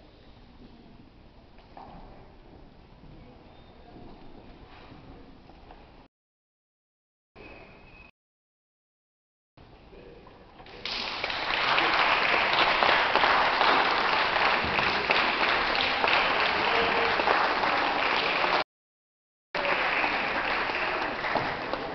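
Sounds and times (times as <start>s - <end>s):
audience applauding: 10.7s - 18.6s, 19.6s - 21.9s.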